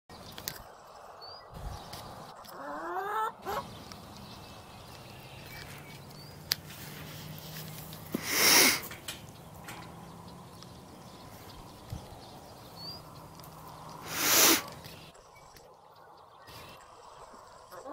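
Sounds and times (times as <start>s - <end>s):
farmyard fowl calling: 2.2s - 15.1s, 17.6s - 17.9s.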